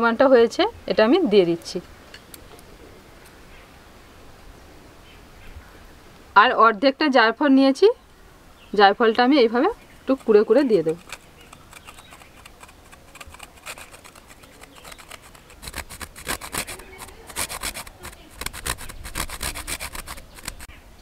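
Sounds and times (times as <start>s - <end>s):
nutmeg rasping on a grater: 10.1s - 20.7s.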